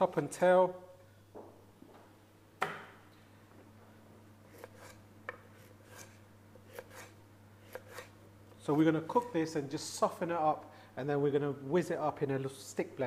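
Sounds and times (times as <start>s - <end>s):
knife chopping carrot on board: 4.5s - 8.1s.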